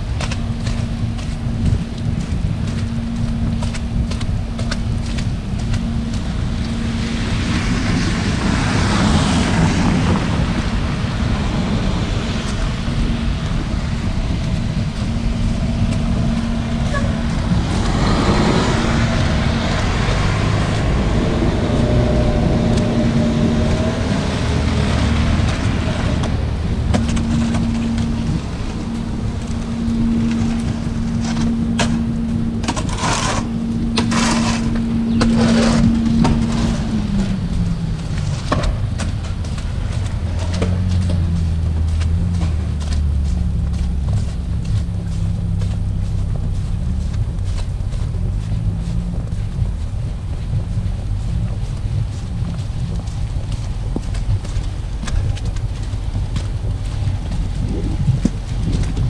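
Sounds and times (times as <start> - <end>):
city traffic rumble: 0.0 - 59.0
engine hum: 0.0 - 59.0
snow shovel scraping sidewalk: 0.0 - 59.0
wind: 0.0 - 59.0.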